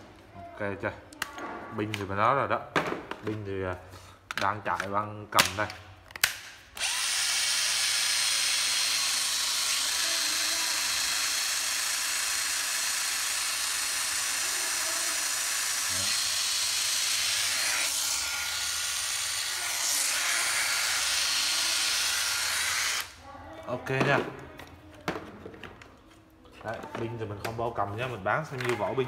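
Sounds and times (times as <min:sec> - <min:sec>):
impact driver motor whir: 0:06.8 - 0:23.2.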